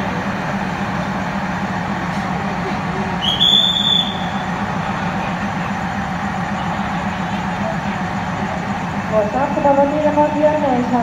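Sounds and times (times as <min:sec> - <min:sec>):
diesel locomotive engine droning: 0:00.0 - 0:11.0
shrill train whistle: 0:03.2 - 0:04.5.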